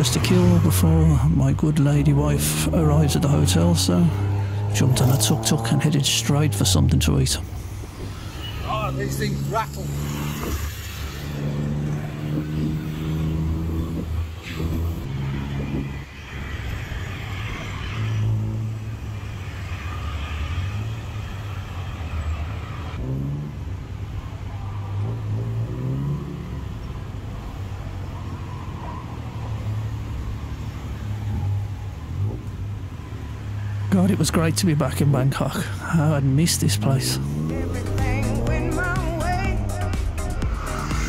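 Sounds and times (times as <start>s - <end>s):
vehicle rattling: 0.0s - 19.8s, 31.2s - 41.0s
auto rickshaw engine revving: 0.0s - 41.0s.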